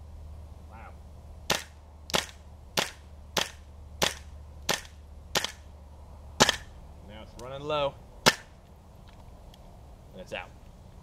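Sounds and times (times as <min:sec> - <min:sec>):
airsoft rifle shots: 0:01.5 - 0:05.7, 0:06.4 - 0:06.7.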